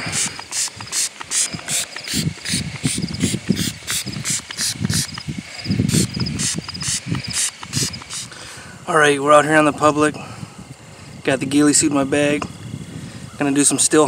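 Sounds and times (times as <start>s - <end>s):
spray bottle spritzing: 0.0s - 8.4s.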